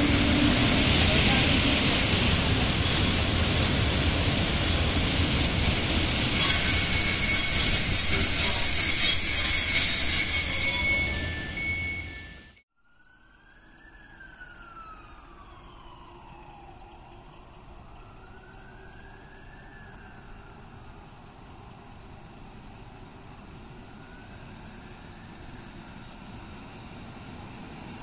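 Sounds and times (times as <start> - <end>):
rumble of train running gear: 0.0 - 12.6
train wheels and brakes squealing: 0.0 - 12.6, 14.1 - 28.0.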